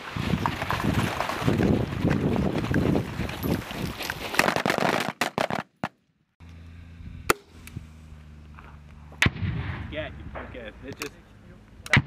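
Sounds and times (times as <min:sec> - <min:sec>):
wind rumble: 0:00.0 - 0:04.3, 0:06.9 - 0:11.7
rifle shots: 0:09.2 - 0:10.5
sharp gunshot cracks: 0:09.2 - 0:10.6.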